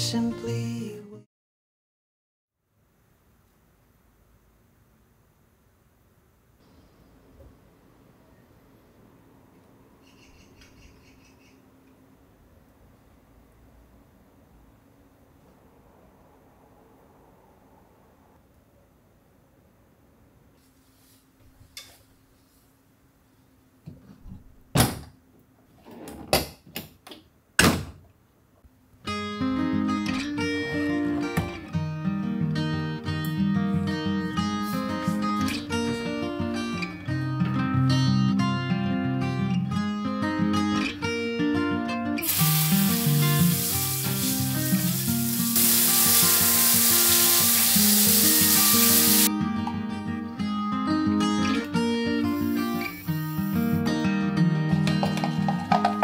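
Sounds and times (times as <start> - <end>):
water spraying onto filter mesh: 42.2 - 49.3.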